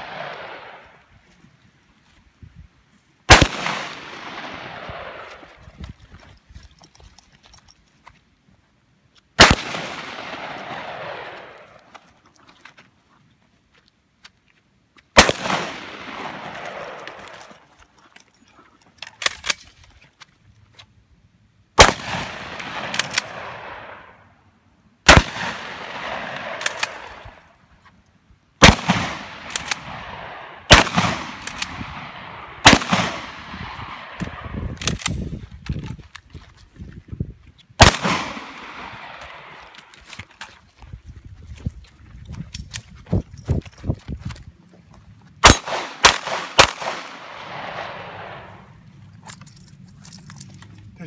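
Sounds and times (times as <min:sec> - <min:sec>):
shotgun shots with echo: 0:03.3 - 0:05.3, 0:09.4 - 0:11.6, 0:15.2 - 0:17.3, 0:21.8 - 0:24.1, 0:25.1 - 0:27.2, 0:28.6 - 0:34.8, 0:37.8 - 0:39.6, 0:45.4 - 0:48.6.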